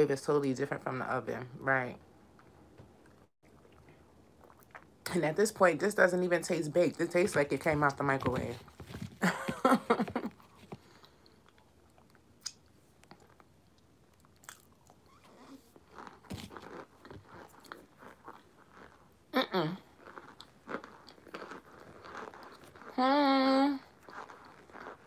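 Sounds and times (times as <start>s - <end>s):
person chewing crunchy food: 3.1s - 5.0s, 10.4s - 23.0s, 23.8s - 25.0s.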